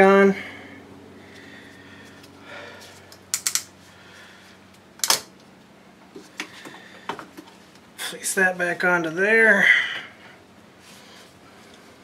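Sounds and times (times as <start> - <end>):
tools clicking and knocking: 3.3 - 3.7.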